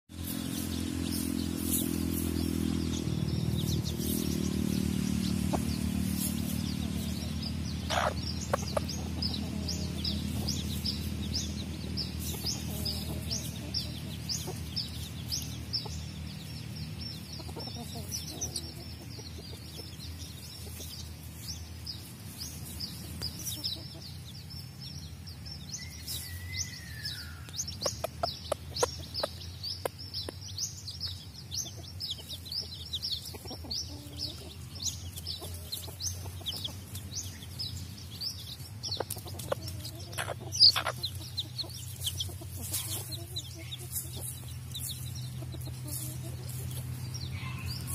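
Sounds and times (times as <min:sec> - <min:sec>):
chicks peeping: 0:00.1 - 0:47.9
hen clucking: 0:03.6 - 0:21.2, 0:27.4 - 0:47.9.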